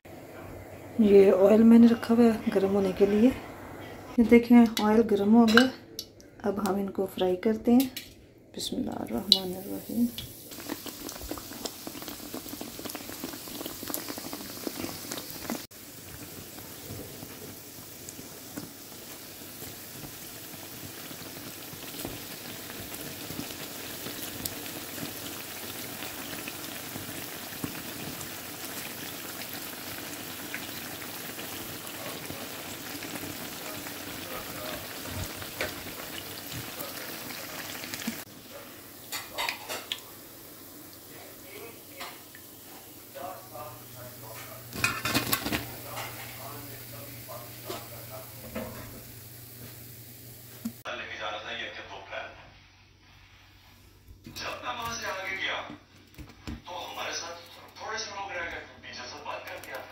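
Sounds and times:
deep-frying oil sizzling: 0:09.1 - 0:50.9.

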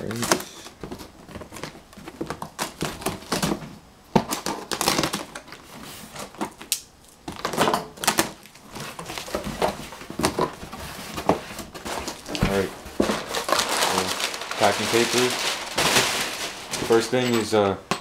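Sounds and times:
packing tape ripping: 0:04.2 - 0:09.4, 0:11.8 - 0:17.0.

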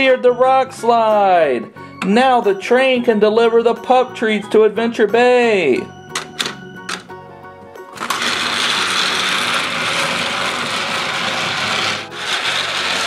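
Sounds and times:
toy train motor and gears: 0:08.0 - 0:13.0.

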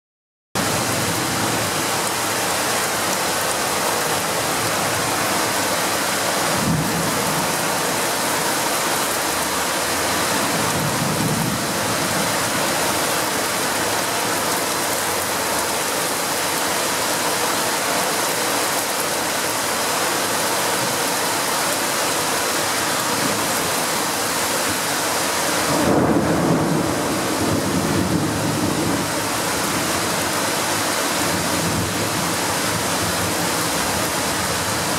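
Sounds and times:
heavy rain: 0:00.6 - 0:34.9
thunder crack: 0:25.7 - 0:29.0
rolling thunder rumble: 0:25.7 - 0:29.2.

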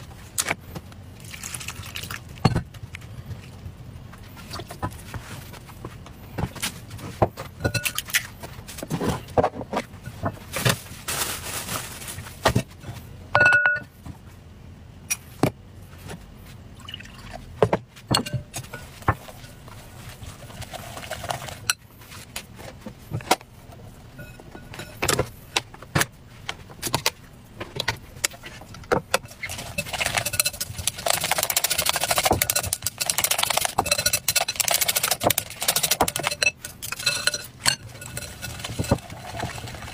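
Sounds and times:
bowls and utensils clicking: 0:28.2 - 0:39.9
chopsticks whisking batter in glass bowl: 0:29.3 - 0:39.9.

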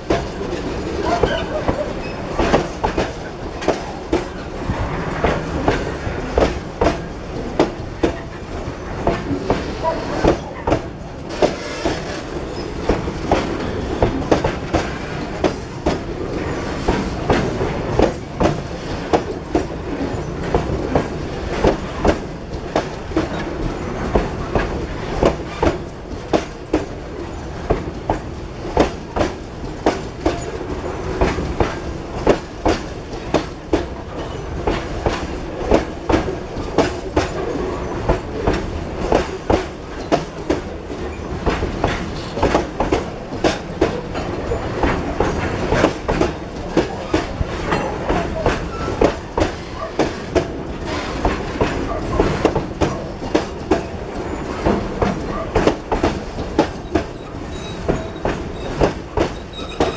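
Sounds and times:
freight train wheels rumbling: 0:00.0 - 0:59.9
wheels clacking over rail joints: 0:00.0 - 0:59.9.

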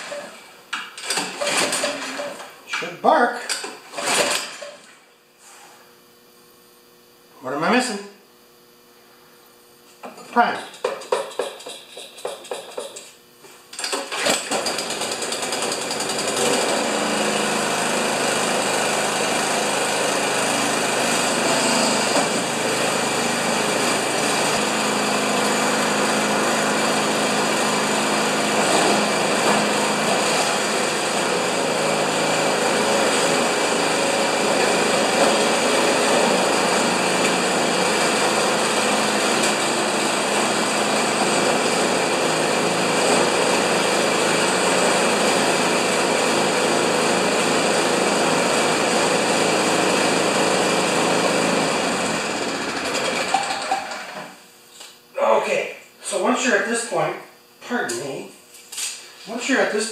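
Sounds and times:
snowblower engine starting and running: 0:00.0 - 0:02.5, 0:13.7 - 0:54.4.

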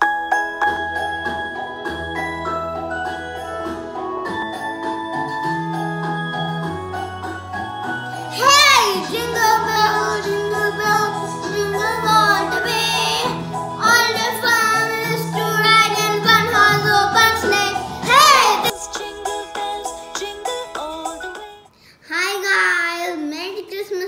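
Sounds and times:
backing music with bass line: 0:00.0 - 0:21.4
child singing: 0:08.3 - 0:24.0.

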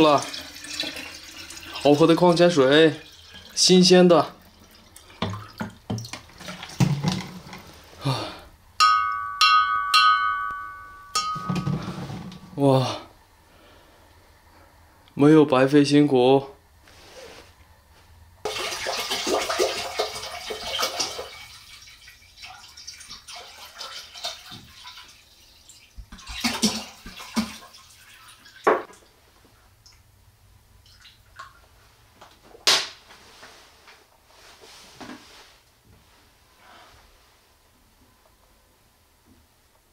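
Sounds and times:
water pouring into crock: 0:00.0 - 0:07.8, 0:18.4 - 0:28.6.

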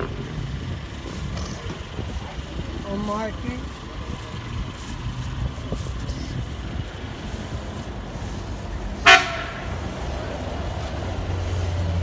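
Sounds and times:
engine rumble: 0:00.0 - 0:12.0
street traffic: 0:00.0 - 0:12.0
loud horn blast: 0:09.0 - 0:09.8.

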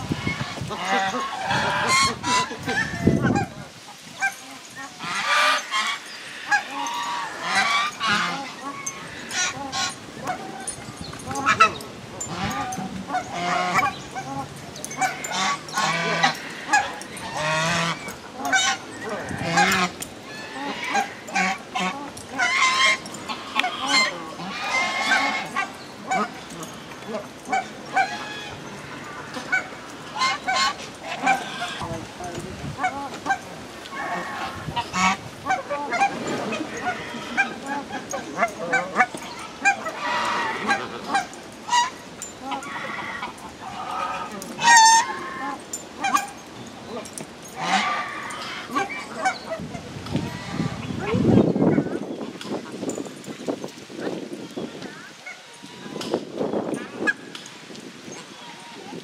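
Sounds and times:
geese honking: 0:00.0 - 0:32.1, 0:32.7 - 0:52.8.

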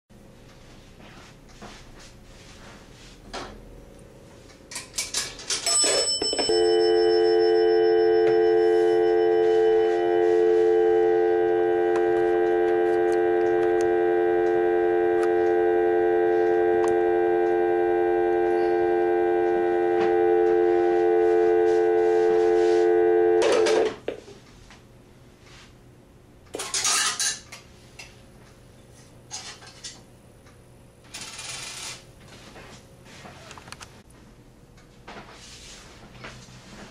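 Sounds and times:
payphone clicks and clatter: 0:04.8 - 0:06.9
coin mechanism bell ring: 0:05.5 - 0:09.4
telephone dial tone: 0:05.7 - 0:23.8.

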